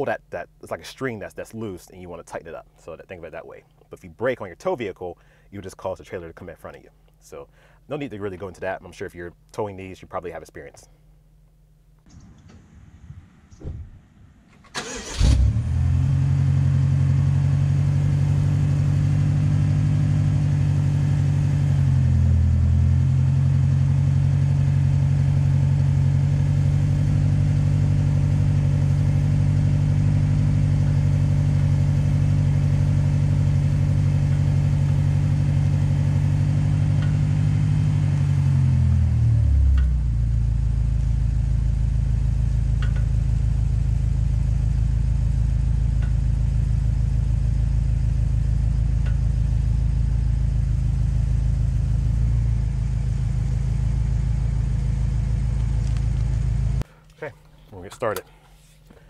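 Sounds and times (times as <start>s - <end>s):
car engine starting: 12.0s - 59.0s
car engine idling: 12.1s - 59.0s.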